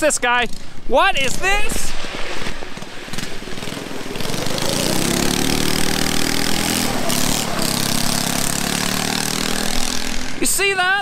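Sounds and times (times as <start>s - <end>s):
small engine revving: 2.7s - 10.4s.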